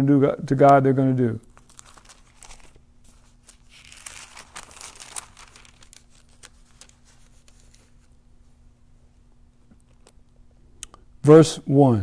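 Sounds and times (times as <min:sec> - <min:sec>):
book pages rustling: 0:01.5 - 0:08.2.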